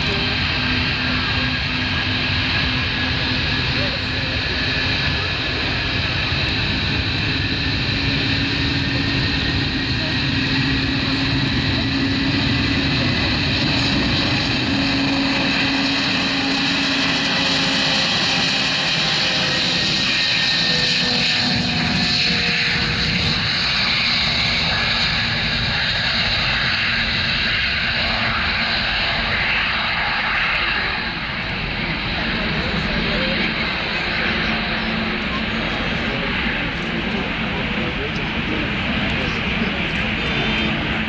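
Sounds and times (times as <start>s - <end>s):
jet engines at takeoff thrust: 0.0s - 41.0s.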